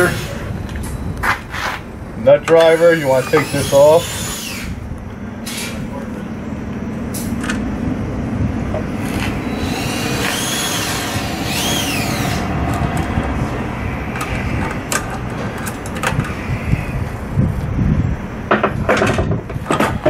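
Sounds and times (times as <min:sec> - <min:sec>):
low rumble: 0:04.7 - 0:18.5.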